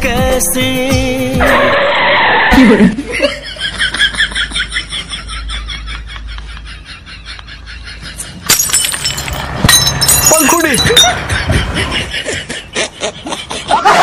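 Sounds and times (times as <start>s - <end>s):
rapid pulsing cackle: 3.9s - 8.4s, 11.1s - 14.0s.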